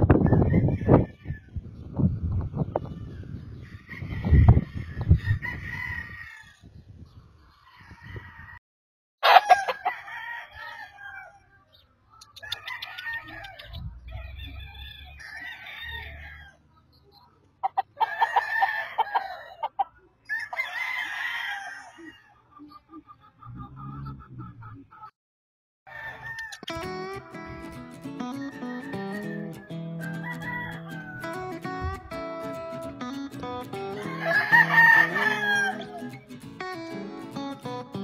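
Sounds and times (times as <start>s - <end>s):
roosters crowing: 0.1s - 1.5s, 3.6s - 6.7s, 9.2s - 11.6s, 12.4s - 16.6s, 17.6s - 22.5s, 25.9s - 26.7s, 28.4s - 31.5s, 33.8s - 36.3s.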